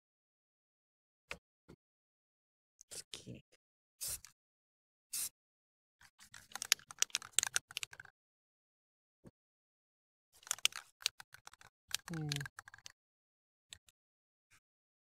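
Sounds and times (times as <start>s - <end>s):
rapid clicking and rattling: 10.4s - 12.9s.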